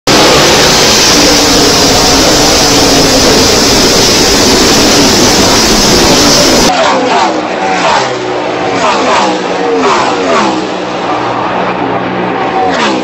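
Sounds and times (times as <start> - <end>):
loud rushing hiss: 0.1 - 6.7
engine running: 0.1 - 13.0.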